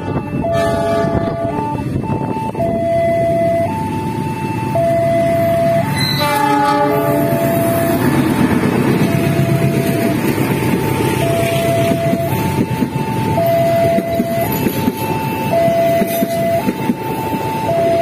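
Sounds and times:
locomotive horn: 0.0 - 3.7, 4.8 - 8.2
passing train rumble: 0.0 - 18.0
two-tone level crossing alarm: 0.0 - 18.0.

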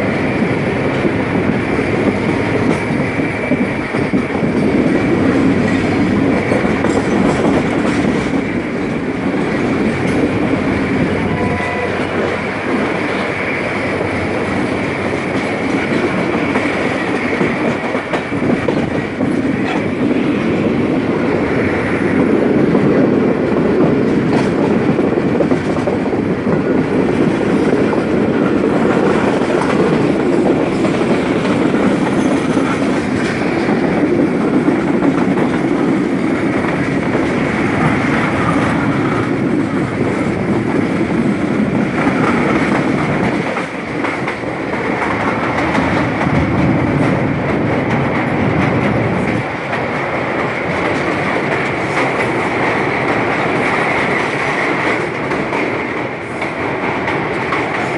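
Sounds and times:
train wheels on rails: 0.0 - 57.9.

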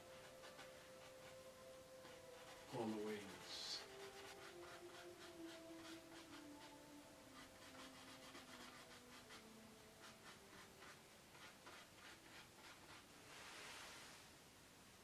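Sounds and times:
paintbrush scratching on canvas: 0.0 - 14.2.

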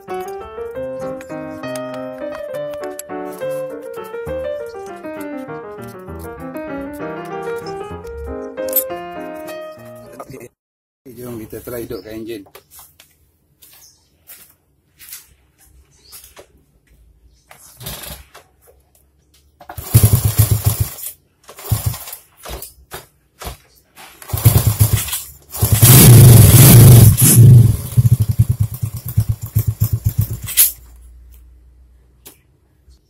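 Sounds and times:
motorcycle engine starting: 19.7 - 22.2, 24.2 - 30.8
motorcycle engine running unevenly: 19.8 - 21.0, 24.3 - 30.6.

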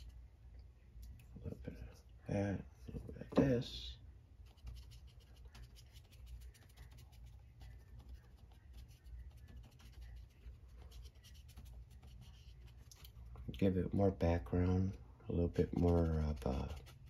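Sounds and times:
paintbrush scratching on paper: 4.4 - 13.4, 15.4 - 17.0.

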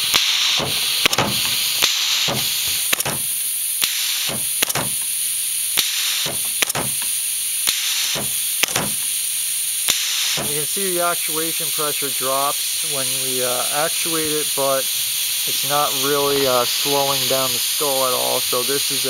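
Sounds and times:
valve and rod clicks and knocks: 0.0 - 9.2, 9.8 - 10.5
compressed air hissing: 0.0 - 19.0.

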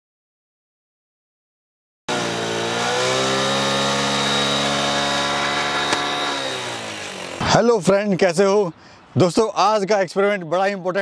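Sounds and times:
motorcycle engine running: 2.1 - 7.5.

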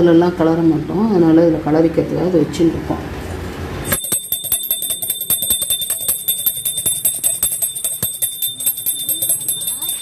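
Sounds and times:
hand bell ringing: 3.9 - 10.0.

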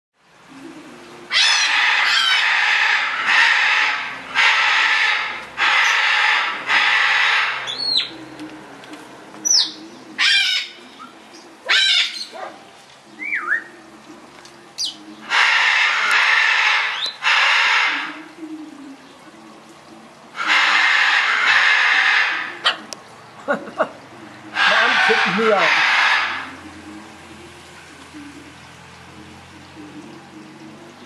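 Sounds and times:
macaws screeching: 1.3 - 8.2, 9.4 - 12.5, 14.8 - 18.2, 20.4 - 23.0, 24.5 - 26.6.

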